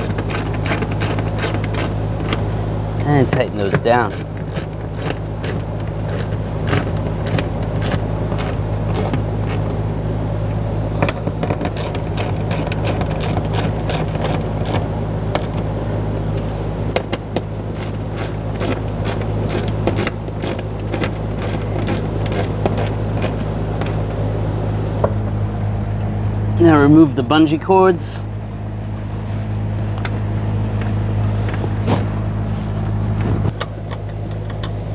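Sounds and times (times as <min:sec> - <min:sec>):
low hum: 0:00.0 - 0:34.9
ratchet clicking: 0:17.7 - 0:23.4.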